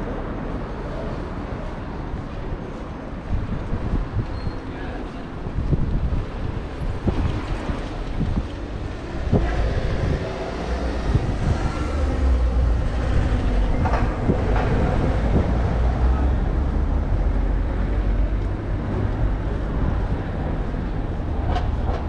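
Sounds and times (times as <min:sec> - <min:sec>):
vehicle rumble passing: 0:05.5 - 0:22.0.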